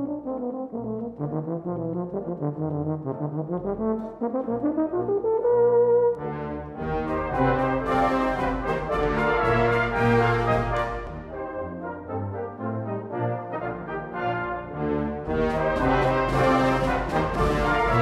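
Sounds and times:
brass band playing: 0:00.0 - 0:18.0
solo euphonium melody: 0:00.0 - 0:18.0
percussion strokes: 0:15.4 - 0:18.0.

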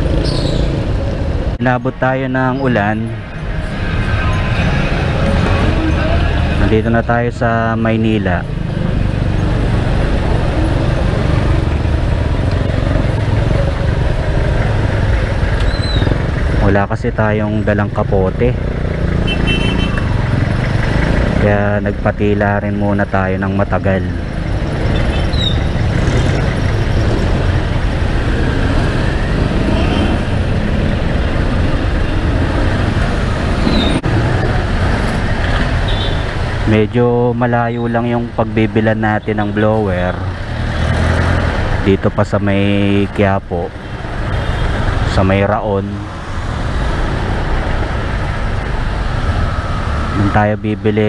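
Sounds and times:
motorcycle engine rumble: 0:08.0 - 0:37.2
wet road noise: 0:08.0 - 0:51.0.

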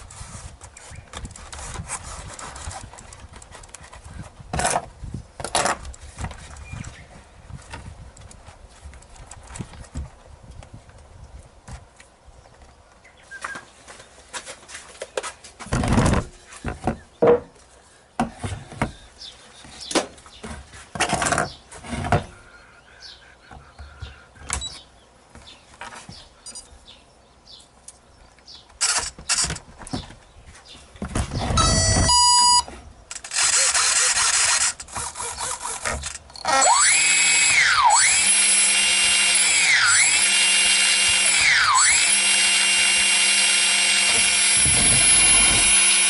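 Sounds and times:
knocks and clatters on wooden table: 0:15.7 - 0:17.5.

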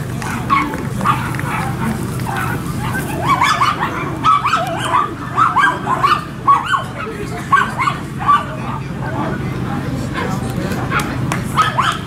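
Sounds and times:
dog yapping: 0:00.5 - 0:08.6, 0:10.9 - 0:12.0.

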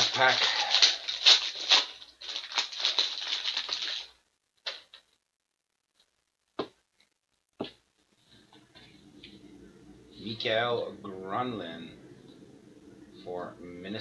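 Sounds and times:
foil wrapper crinkling and tearing: 0:00.0 - 0:05.0.

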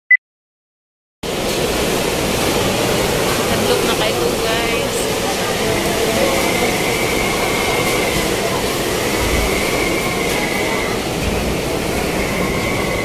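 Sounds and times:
strong wind whistling against building: 0:01.2 - 0:13.0.

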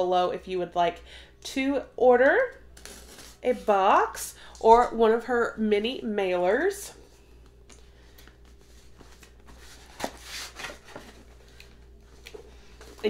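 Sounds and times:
cardboard box rustling: 0:09.0 - 0:11.5.

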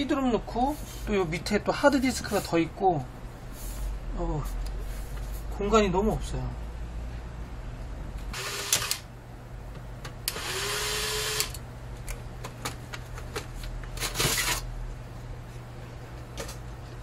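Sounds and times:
electric screwdriver whirring: 0:08.3 - 0:09.1, 0:10.3 - 0:11.6.

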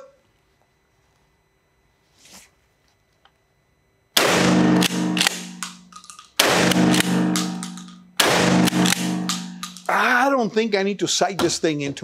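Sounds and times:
shotgun blasts ringing indoors: 0:04.2 - 0:09.9.

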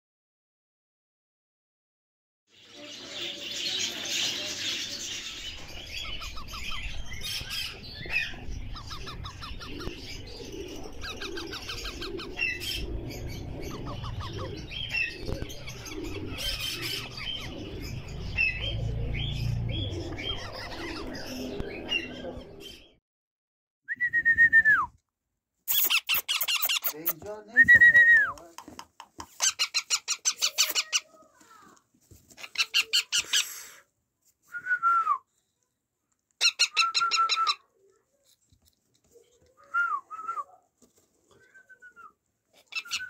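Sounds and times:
parrot chicks chattering: 0:02.6 - 0:22.9, 0:25.7 - 0:27.2, 0:29.2 - 0:31.7, 0:32.3 - 0:33.8, 0:36.4 - 0:38.4, 0:42.5 - 0:43.0
rustling and flapping: 0:31.2 - 0:32.5, 0:40.8 - 0:41.5.

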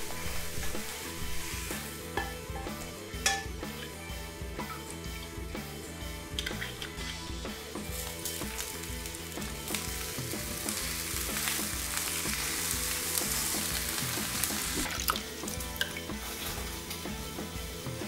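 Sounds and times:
vegetables sizzling in hot oil: 0:00.0 - 0:02.1, 0:07.0 - 0:18.0
background music: 0:00.0 - 0:18.0.

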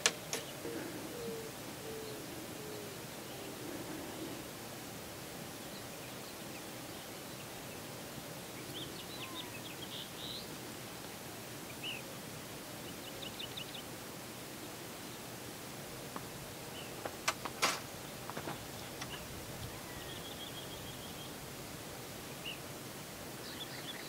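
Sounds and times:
steady background hiss: 0:00.0 - 0:24.0
faint bird chirps: 0:08.5 - 0:10.6, 0:18.5 - 0:21.4, 0:23.4 - 0:24.0.

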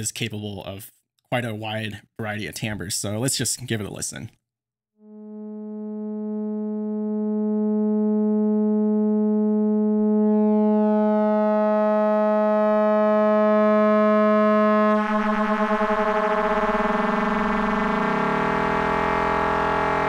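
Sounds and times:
synthesizer oscillator held tone: 0:05.0 - 0:20.0.

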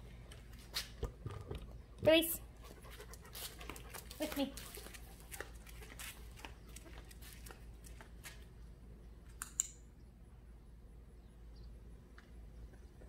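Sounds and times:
footsteps on concrete: 0:02.1 - 0:08.6.

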